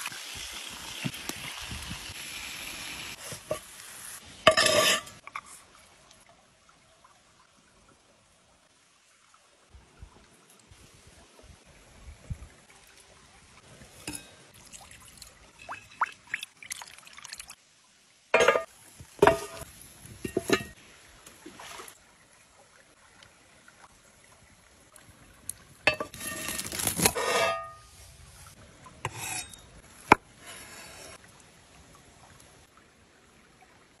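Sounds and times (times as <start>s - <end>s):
creek flowing: 0.0s - 34.0s
food handling in a pan: 25.9s - 27.8s.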